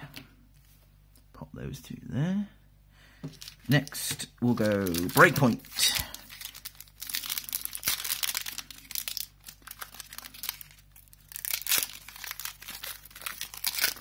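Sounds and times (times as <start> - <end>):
foil wrapper crinkling and tearing: 3.4 - 3.8, 4.4 - 14.0.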